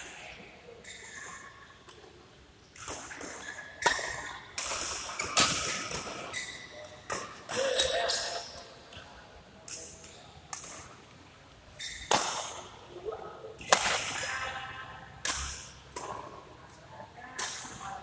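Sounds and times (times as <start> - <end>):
rackets hitting shuttlecock: 2.8 - 7.9, 11.8 - 12.7, 13.6 - 14.4, 15.2 - 16.4.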